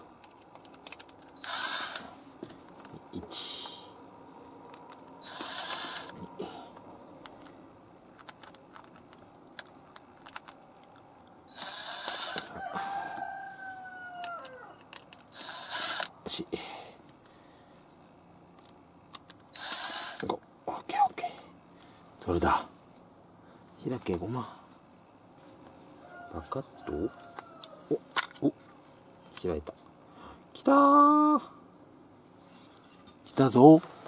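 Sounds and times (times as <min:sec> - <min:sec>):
impact driver spinning out screws: 0:01.4 - 0:02.1, 0:05.2 - 0:06.2, 0:11.5 - 0:12.5, 0:15.3 - 0:16.1, 0:19.5 - 0:20.3.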